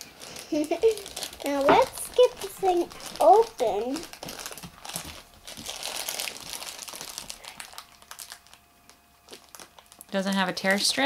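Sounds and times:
foil bag crinkling: 0.0s - 11.0s.

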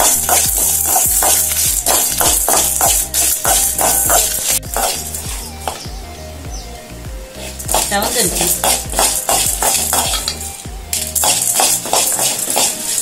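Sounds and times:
background music: 0.0s - 13.0s
metal spoon scraping a pan: 8.4s - 10.5s, 11.2s - 13.0s.

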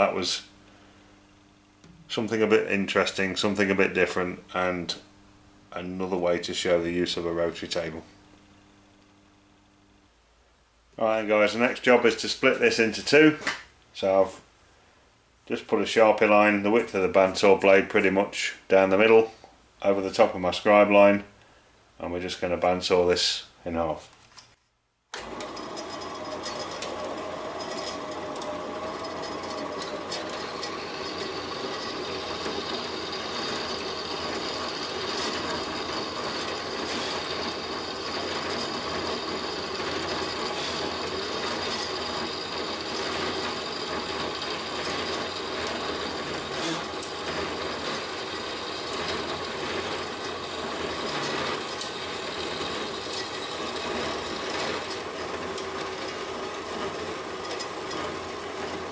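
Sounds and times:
bandsaw cutting metal: 25.2s - 58.9s.

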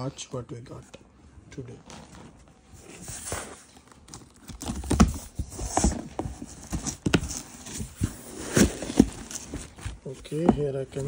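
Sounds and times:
knocks on cardboard box: 4.7s - 9.8s.

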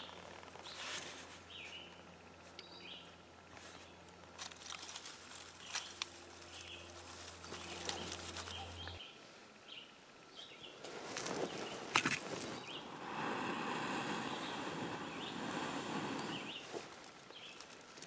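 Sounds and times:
birds chirping: 0.0s - 4.1s, 5.4s - 18.0s
twigs snapping and clicking: 4.4s - 6.6s
person blowing on ember: 12.4s - 17.0s.

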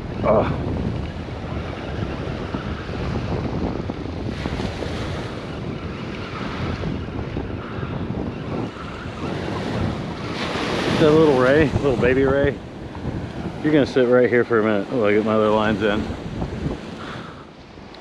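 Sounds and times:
small waves washing onto sand: 0.0s - 18.0s
wind buffeting microphone: 0.0s - 18.0s.

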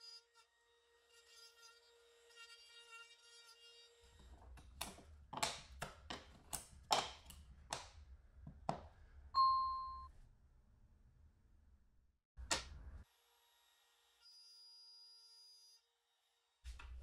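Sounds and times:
wooden pieces knocking: 4.2s - 9.0s
short clear ding: 9.4s - 10.1s.

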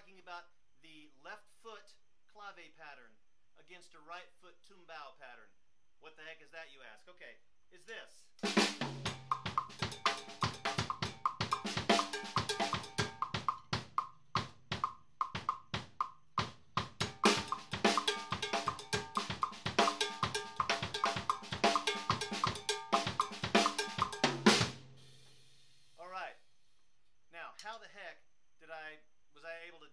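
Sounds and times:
cowbell clave pattern: 8.4s - 24.8s
sticks playing drums: 8.4s - 25.0s
bass drum pattern: 8.4s - 25.1s.

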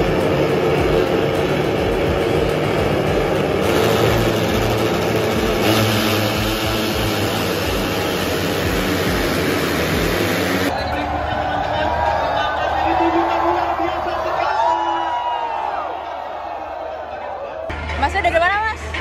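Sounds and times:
motorcycles pulling away: 0.0s - 10.7s
race motorcycles revving: 0.0s - 11.6s.

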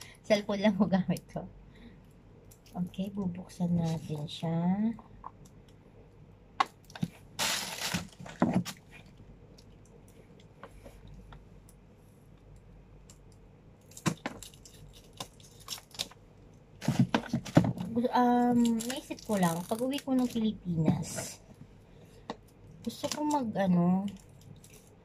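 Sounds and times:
plastic wrapping tearing: 7.0s - 8.8s, 13.9s - 16.2s, 18.4s - 20.4s.

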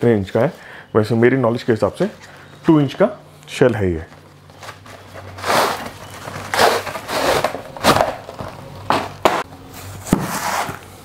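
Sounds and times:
cardboard scraping and rustling: 4.6s - 11.0s.

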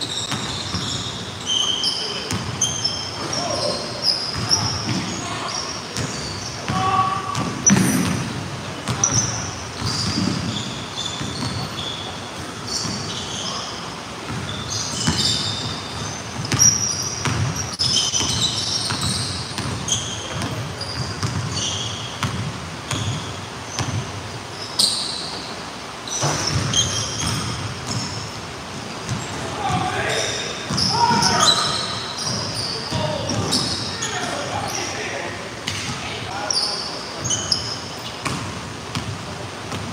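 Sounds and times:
sneakers squeaking: 0.0s - 39.9s
basketball bouncing on hardwood floor: 9.8s - 10.6s.

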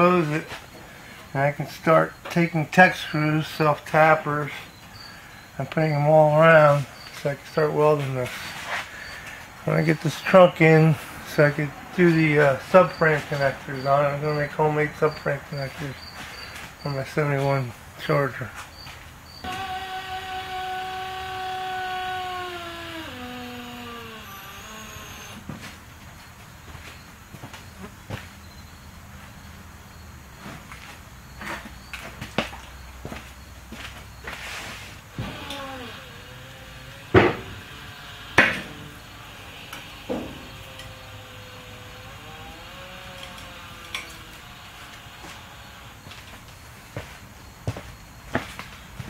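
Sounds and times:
hydraulic lift whine: 19.4s - 25.6s, 34.2s - 46.4s
loud metallic clunks: 37.1s - 37.8s, 40.0s - 40.6s.

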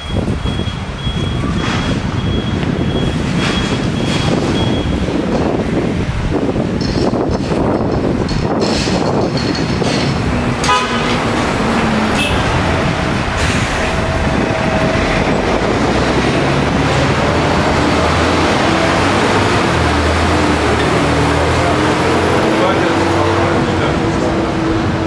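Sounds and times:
street traffic engine rumble: 0.0s - 25.0s
car horn toot: 10.6s - 11.4s, 12.1s - 12.7s.

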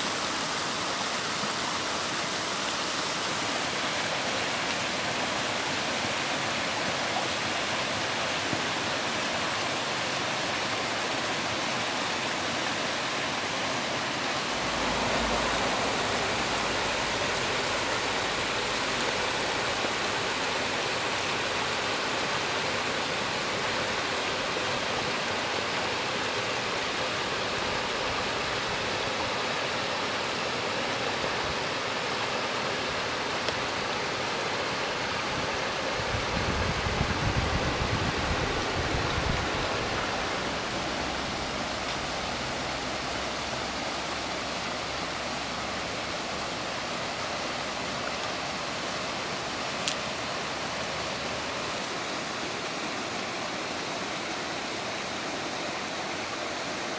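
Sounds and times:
water rushing through channel: 0.0s - 56.9s
low rumble: 14.5s - 18.8s.

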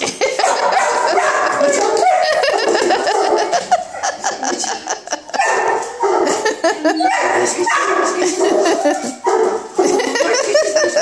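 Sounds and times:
woman laughing: 0.0s - 5.4s, 6.2s - 7.1s, 8.2s - 9.1s, 9.8s - 11.0s.

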